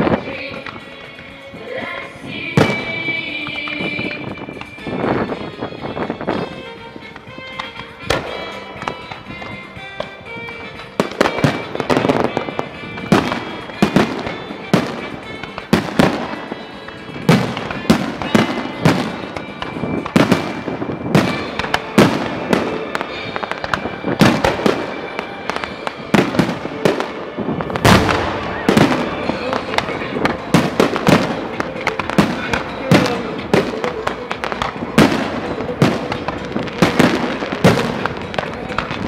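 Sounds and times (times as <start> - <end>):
firework crackling: 0.0 - 39.0
music playing: 0.0 - 39.0
firework shells bursting: 2.6 - 39.0.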